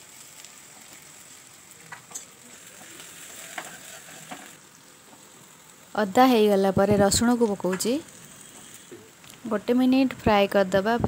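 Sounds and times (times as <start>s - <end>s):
onions sizzling in hot oil: 0.0s - 11.0s
metal spatula scraping pan: 2.9s - 4.6s, 8.1s - 9.1s.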